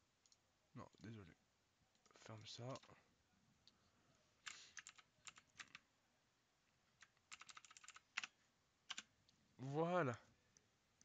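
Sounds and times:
typing on computer keyboard: 0:04.4 - 0:05.8, 0:07.0 - 0:08.3, 0:08.9 - 0:09.1.

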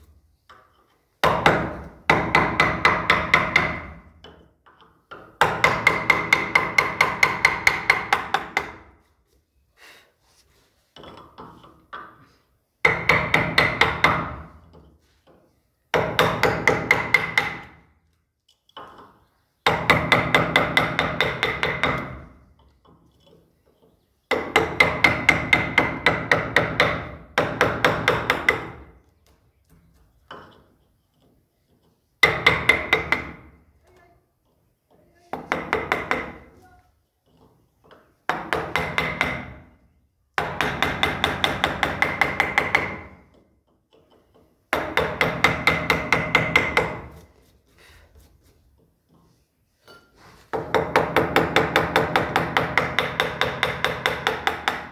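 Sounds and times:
chisel tapped with mallet: 0:30.2 - 0:36.6.

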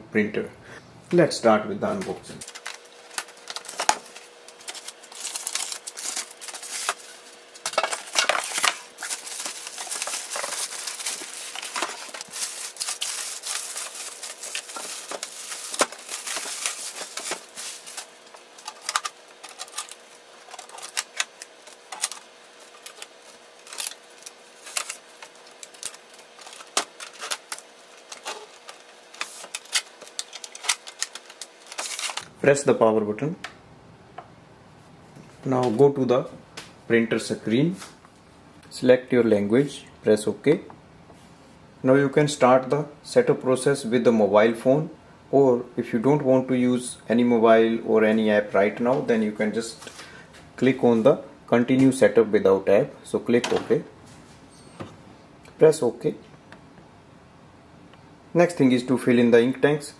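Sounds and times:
faint steady hum: 0:00.0 - 0:59.9
cardboard and packing rustling: 0:02.4 - 0:32.2.

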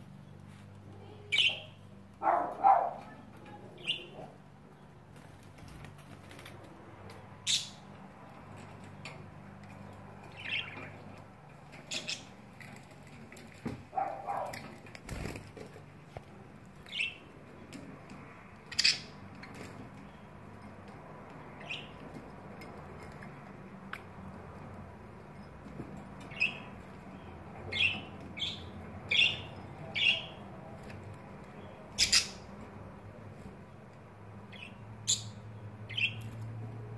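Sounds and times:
budgerigars chirping: 0:10.3 - 0:11.0, 0:27.7 - 0:30.4, 0:31.9 - 0:32.5, 0:34.5 - 0:36.3.

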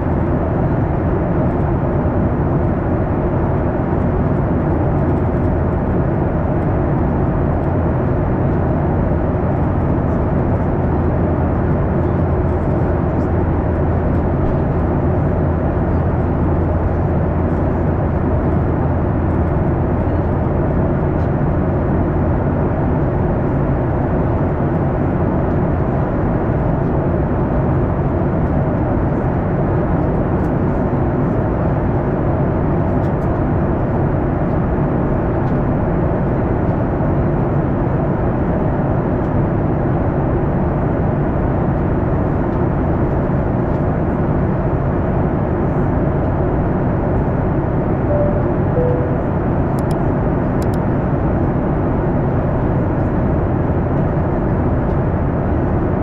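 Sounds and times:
airplane cabin rumble: 0:00.0 - 0:39.4, 0:40.0 - 0:56.0.

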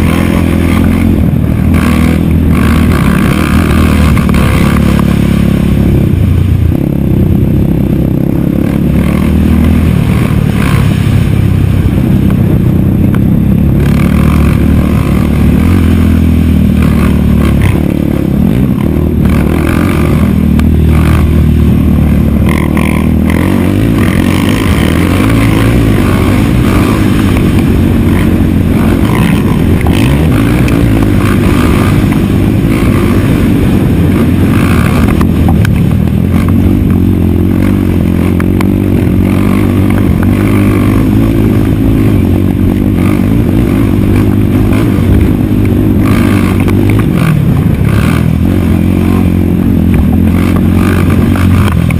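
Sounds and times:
chassis rattling over bumps: 0:00.0 - 0:51.9
quad engine revving: 0:00.0 - 0:51.9.

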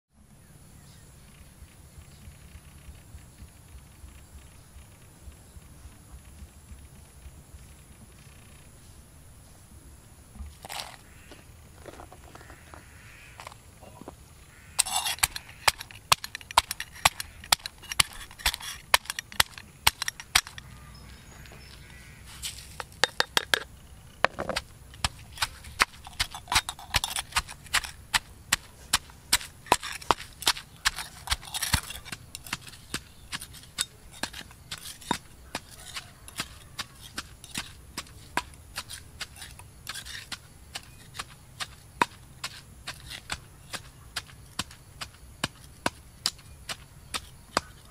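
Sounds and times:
pestle pounding in stone mortar: 0:14.8 - 0:20.6, 0:22.8 - 0:47.9
ingredients crunching: 0:24.3 - 0:44.7.

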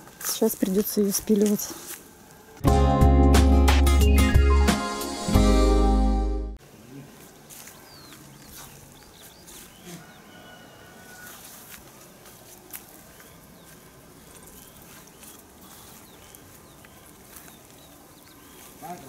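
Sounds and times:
small birds chirping: 0:06.7 - 0:19.0.

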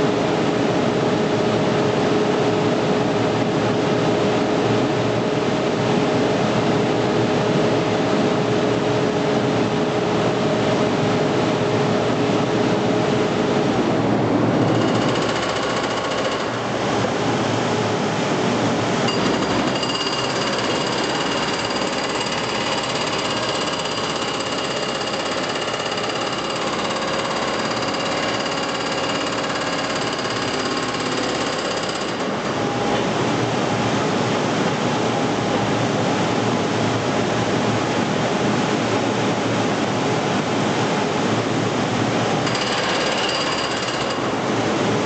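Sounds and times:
hydraulic hammer pounding brick: 0:14.6 - 0:16.7, 0:19.1 - 0:32.6, 0:42.4 - 0:44.4.

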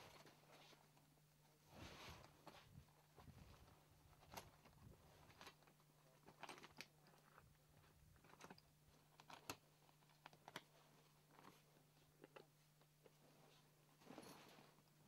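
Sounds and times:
fabric rustling: 0:00.0 - 0:05.6, 0:13.0 - 0:15.0.

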